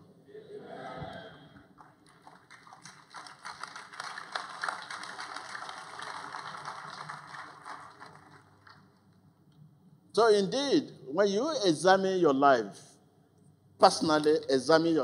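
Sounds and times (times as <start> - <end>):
crowd applauding: 1.8 - 8.9.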